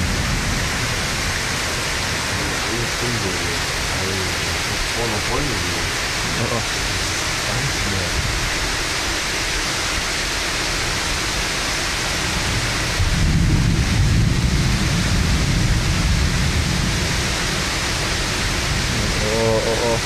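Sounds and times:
low rumble of thunder: 0.0s - 2.8s, 12.2s - 20.0s
heavy rain pouring: 0.0s - 20.0s.

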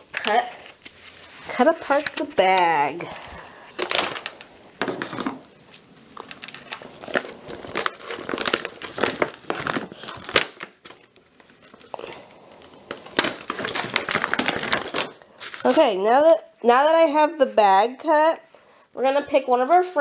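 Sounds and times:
paper bag crinkling: 3.8s - 15.9s.

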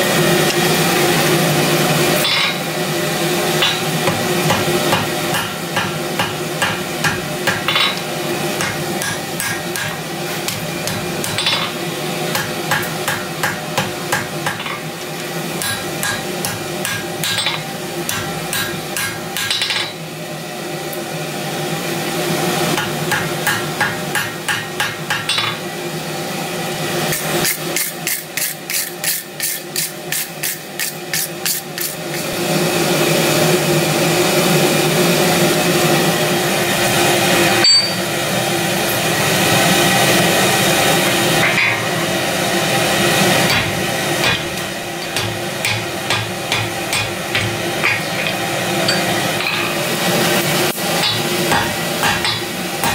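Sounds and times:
hammer striking steel on anvil: 2.2s - 2.7s, 3.6s - 14.9s, 15.6s - 20.0s, 22.8s - 25.6s, 37.6s - 38.3s, 43.4s - 49.8s, 51.0s - 52.9s.

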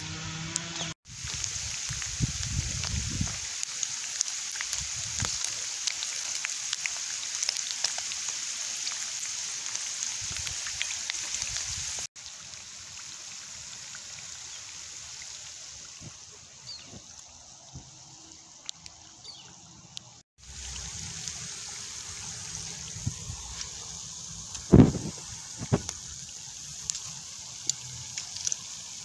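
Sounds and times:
chicken wings sizzling in hot oil: 0.0s - 19.4s, 20.4s - 29.0s
small crackling pops: 26.8s - 28.7s.

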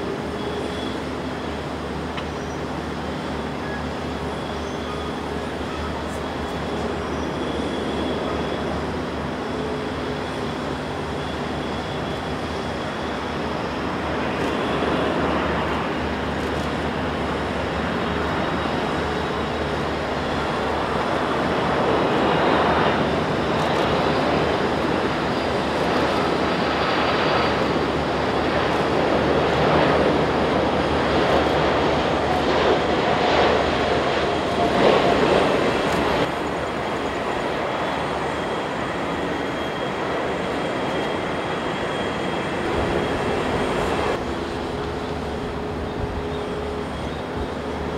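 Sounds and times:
jet engines rumbling with whine: 0.0s - 47.9s.

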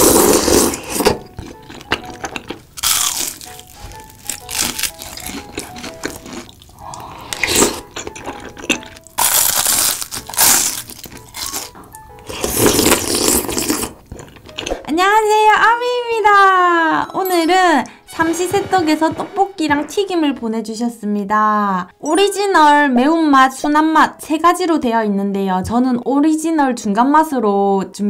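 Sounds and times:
slurping broth: 0.0s - 1.9s, 5.4s - 9.0s, 12.2s - 14.4s
wet crunchy chewing: 0.0s - 14.9s
light background tune: 0.0s - 28.0s.

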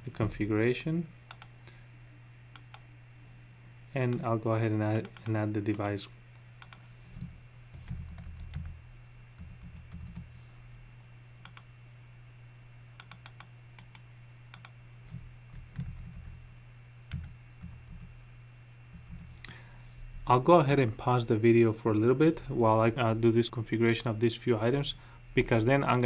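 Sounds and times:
steady low hum: 0.0s - 26.0s
computer keyboard keystrokes: 1.3s - 1.5s, 6.6s - 6.8s, 7.9s - 8.8s, 9.4s - 10.2s, 11.4s - 11.7s, 13.0s - 14.8s, 15.5s - 16.4s, 17.1s - 18.1s.

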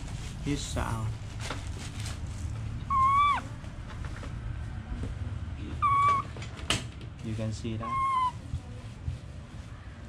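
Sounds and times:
infant monkey coo calls: 2.8s - 3.5s, 5.7s - 6.3s, 7.8s - 8.4s.

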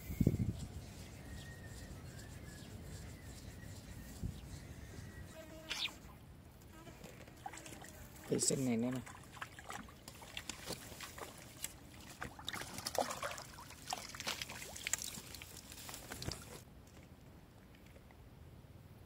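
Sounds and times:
fish splashing and thrashing in water: 9.0s - 16.6s.

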